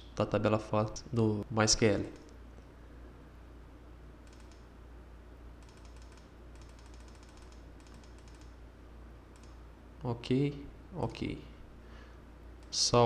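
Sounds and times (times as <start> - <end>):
steady low hum: 0.0 - 13.0
rapid computer clicking: 4.2 - 4.7, 5.6 - 8.6, 9.3 - 9.6.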